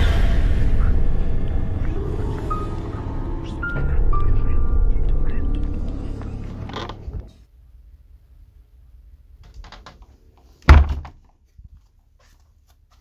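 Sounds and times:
background music: 0.0s - 7.3s
wooden door banging: 10.6s - 11.2s.

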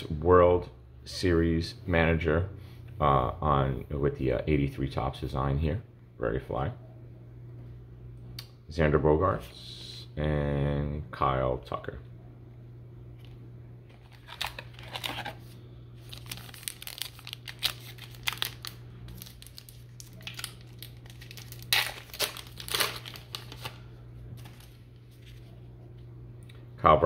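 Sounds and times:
wrapper crinkling and tearing: 13.9s - 25.4s.

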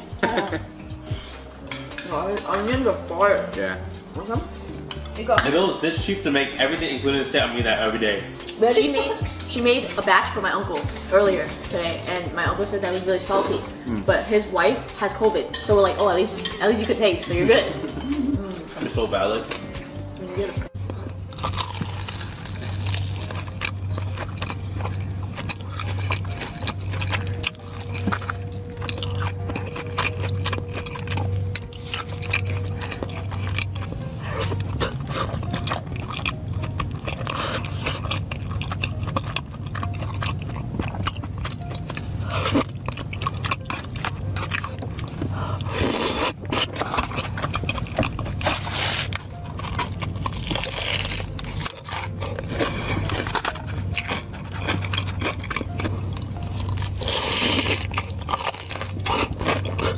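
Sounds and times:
background music with low beat: 0.0s - 59.9s
person chewing crispy food: 20.8s - 59.9s.

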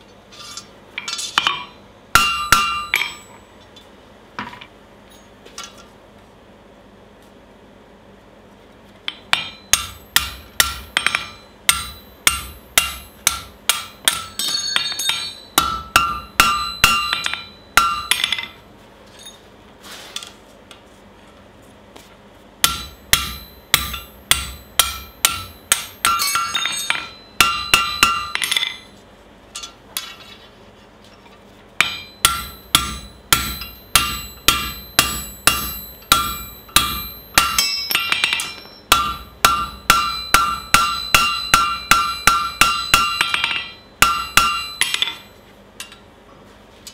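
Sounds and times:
hammer striking punch on anvil: 1.4s - 3.4s, 9.1s - 18.6s, 22.6s - 28.9s, 31.8s - 45.4s.

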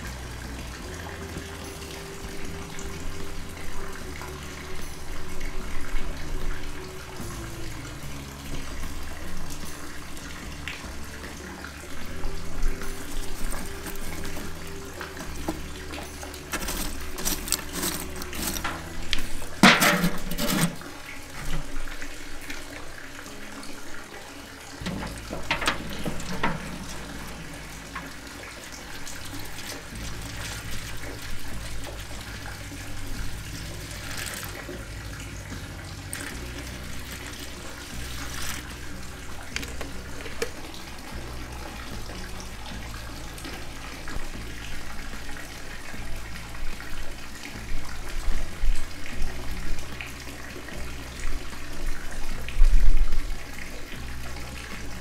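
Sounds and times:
water pouring into foil pan: 0.0s - 55.0s
wood and charcoal clattering: 12.8s - 21.9s, 24.8s - 32.1s, 33.7s - 34.8s, 36.1s - 40.7s.

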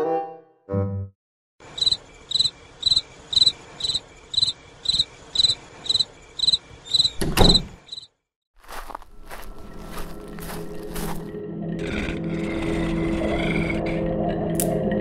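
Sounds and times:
crickets chirping: 1.6s - 8.1s.

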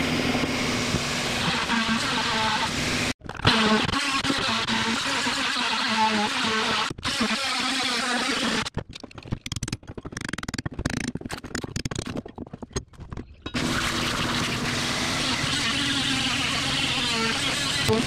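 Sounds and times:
oscillating multi-tool buzzing: 13.8s - 18.0s.

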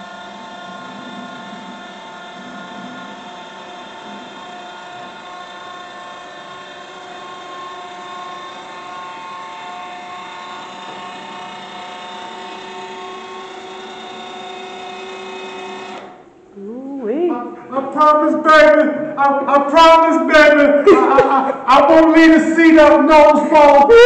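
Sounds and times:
electric motor whining: 0.0s - 16.3s.

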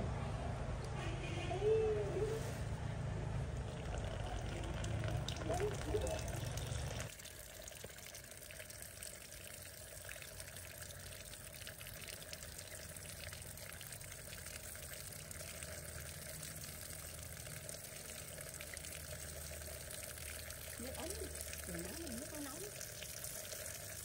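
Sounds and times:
tap water pouring and splashing: 3.5s - 24.0s.

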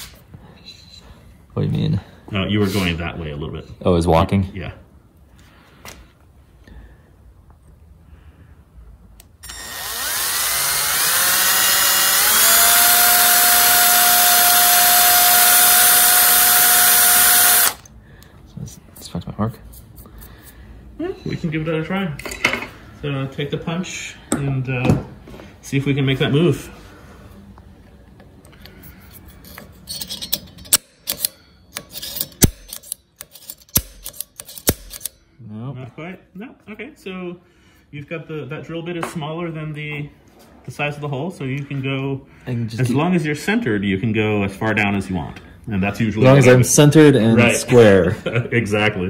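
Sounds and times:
hand drill motor whine: 9.4s - 17.9s
punch tip scraping on metal: 29.3s - 35.2s.

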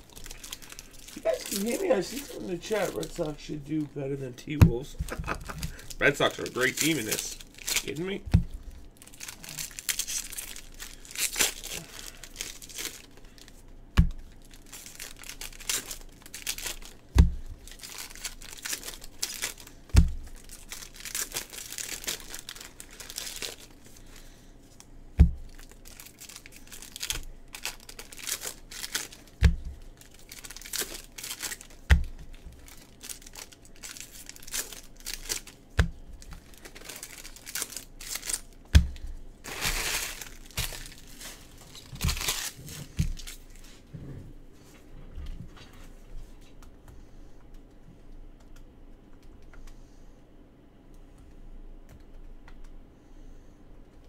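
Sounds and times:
foil wrappers tearing and crinkling: 0.0s - 3.8s, 5.1s - 24.4s, 25.4s - 43.6s
dull thump: 8.3s - 8.6s, 20.0s - 20.2s.

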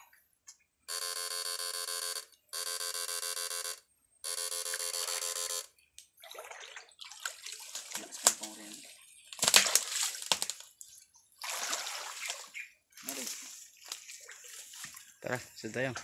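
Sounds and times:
electronic buzzes: 0.9s - 5.8s
water sloshing: 6.1s - 16.0s.

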